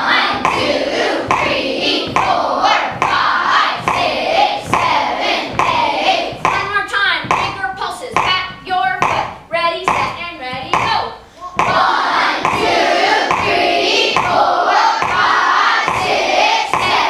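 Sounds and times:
children chanting in unison: 0.0s - 6.4s, 11.4s - 17.0s.

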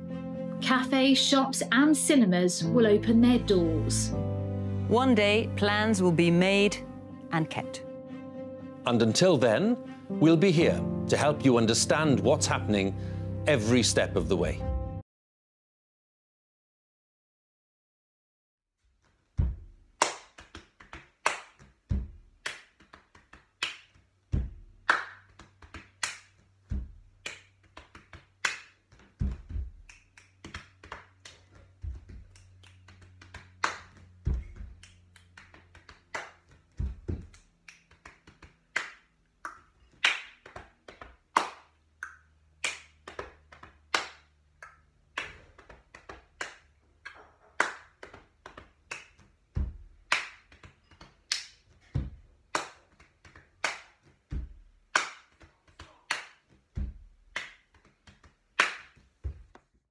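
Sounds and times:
sharp snaps and taps: 20.0s - 41.4s.

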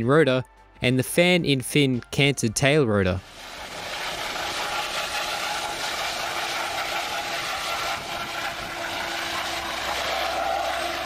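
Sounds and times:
helicopter rotor and turbine noise: 3.2s - 11.0s.

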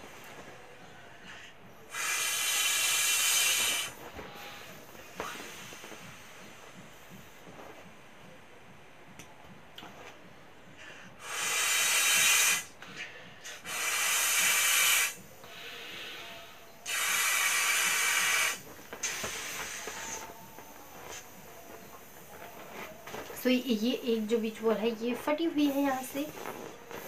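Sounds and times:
breath blown into beach ball: 1.8s - 6.9s, 11.2s - 21.4s.

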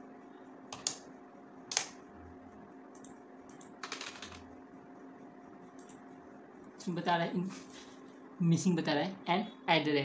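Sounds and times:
faint steady hum: 0.0s - 10.0s
computer keyboard keystrokes: 0.7s - 1.0s, 1.7s - 2.0s, 3.0s - 4.4s.

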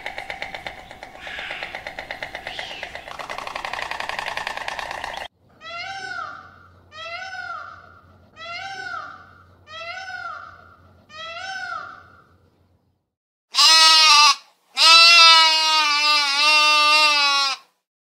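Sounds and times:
peafowl calling: 0.0s - 6.2s
sheep bleating: 13.6s - 17.7s.

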